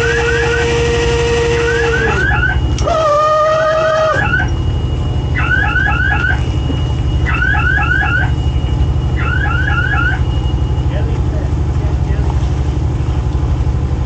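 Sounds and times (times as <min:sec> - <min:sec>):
low engine drone: 0:00.0 - 0:14.0
electronic alarm chirps: 0:01.8 - 0:11.1.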